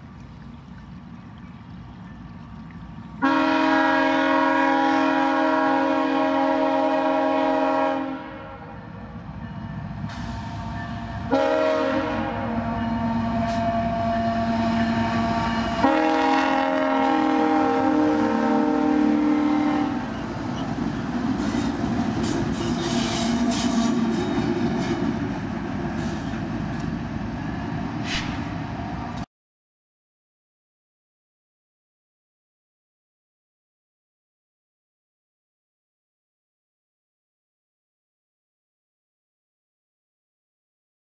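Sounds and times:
train rumble and rail clatter: 0.0s - 29.3s
locomotive air horn blasts: 3.2s - 9.0s, 10.1s - 20.1s.

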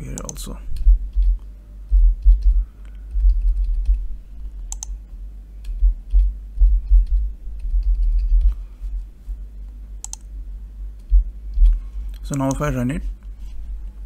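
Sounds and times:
low rumble: 0.6s - 9.5s, 10.4s - 12.2s.

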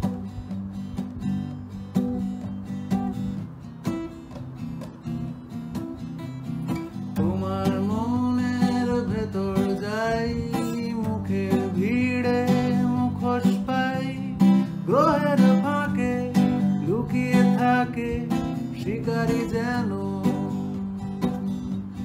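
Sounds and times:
strummed acoustic guitar: 0.0s - 22.0s
man singing: 7.2s - 21.1s.

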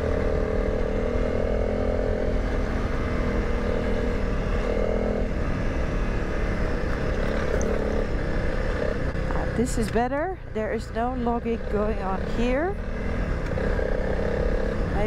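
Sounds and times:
motorcycle engine cruising: 0.0s - 15.0s
tyres on gravel: 6.8s - 8.2s.

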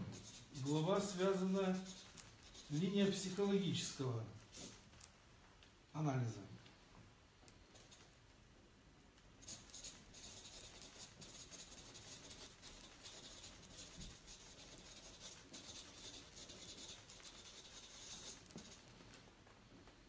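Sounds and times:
marker scratching on paper: 0.0s - 3.6s, 4.4s - 4.8s, 9.4s - 18.9s.

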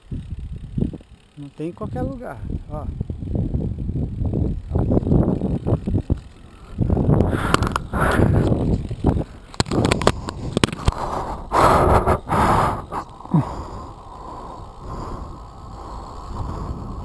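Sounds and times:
wind buffeting microphone: 0.0s - 17.0s
bicycle knocks and rattles: 3.4s - 11.0s.

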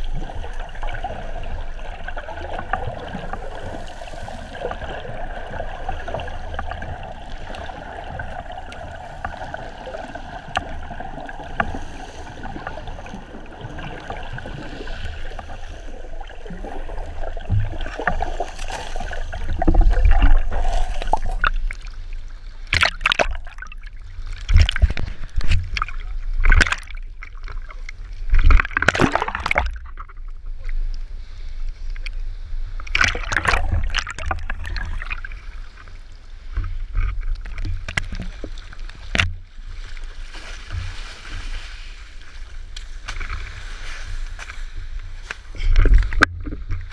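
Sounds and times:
muffled underwater hiss: 0.0s - 22.5s
water splashes and gurgles: 0.0s - 46.9s.

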